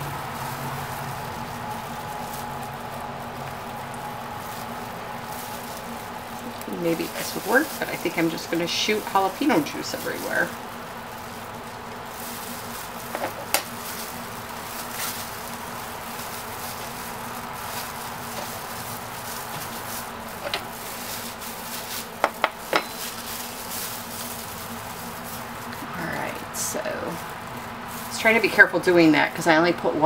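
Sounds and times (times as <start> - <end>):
steady hum: 0.0 - 30.0.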